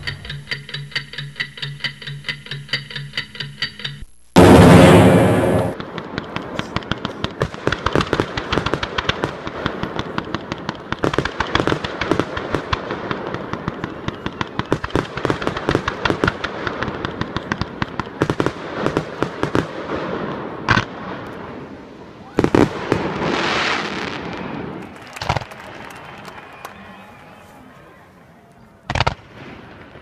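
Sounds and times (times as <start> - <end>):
fireworks popping and cracking: 4.0 - 21.4, 22.4 - 26.2, 28.9 - 30.0
loud firework bang: 4.4 - 9.7.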